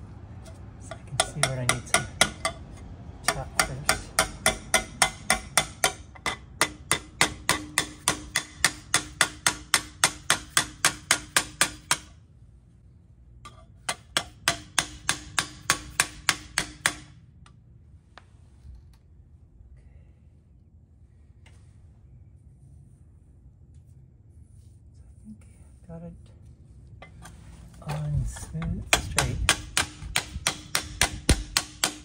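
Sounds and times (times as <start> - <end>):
hammer tapping on steel plate: 0.9 - 12.1, 13.5 - 17.1, 28.6 - 32.0.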